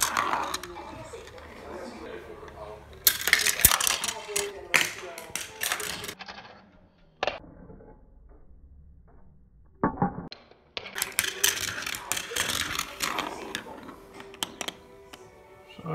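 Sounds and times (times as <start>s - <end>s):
marbles clattering on a marble run: 0.0s - 1.5s, 3.0s - 6.5s, 9.8s - 14.8s.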